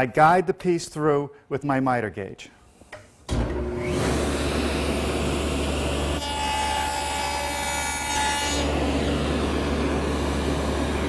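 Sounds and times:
table saw cutting wood: 0:03.3 - 0:11.0.

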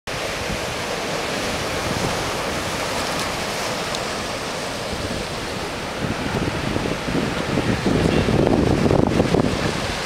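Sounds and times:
surf breaking and foaming: 0:00.1 - 0:10.0
wind buffeting microphone: 0:00.1 - 0:10.0.

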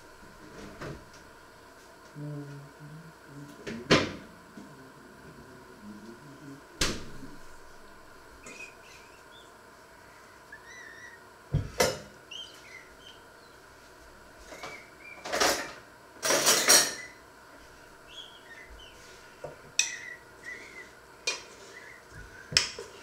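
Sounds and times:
faint high chirps: 0:08.4 - 0:11.3, 0:12.2 - 0:13.6, 0:18.0 - 0:19.1.

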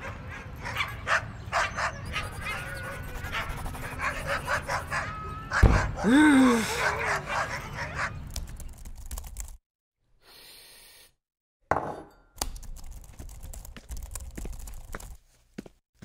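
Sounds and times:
typing on a laptop keyboard: 0:08.3 - 0:09.6, 0:12.4 - 0:15.2.

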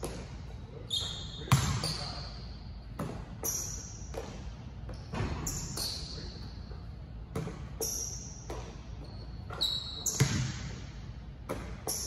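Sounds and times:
basketball bouncing on court: 0:00.0 - 0:00.5, 0:01.4 - 0:02.2, 0:02.9 - 0:06.0, 0:07.3 - 0:10.7, 0:11.4 - 0:12.0.

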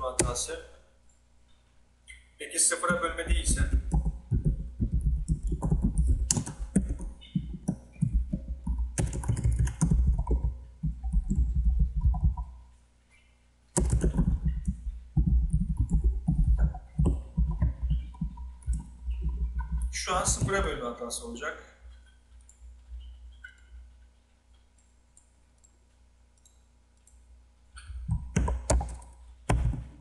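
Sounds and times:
typing on keyboard: 0:02.8 - 0:12.6, 0:13.8 - 0:20.8, 0:27.8 - 0:30.0.

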